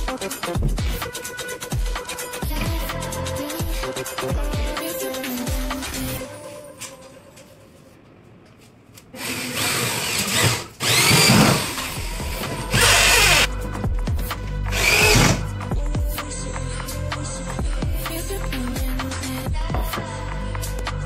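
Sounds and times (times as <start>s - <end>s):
music: 0.0s - 8.0s, 10.8s - 21.0s
power drill whining: 9.2s - 13.5s, 14.7s - 15.4s.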